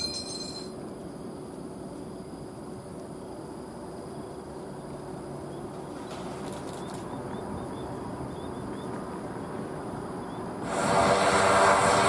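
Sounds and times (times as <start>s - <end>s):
distant turboprop engines rumbling: 0.8s - 12.0s
small birds chirping: 4.1s - 10.6s.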